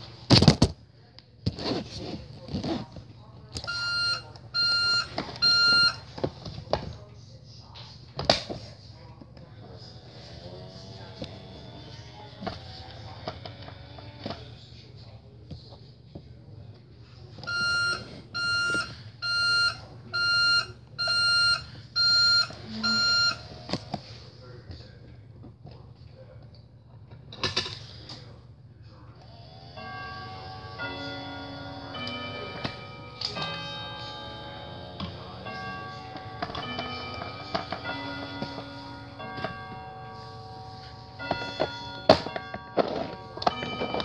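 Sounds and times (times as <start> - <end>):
toy electronic beeper beeps: 3.6 - 6.1, 17.5 - 23.5
toy truck electronic beeps: 3.6 - 6.2, 17.5 - 23.9, 29.8 - 39.6.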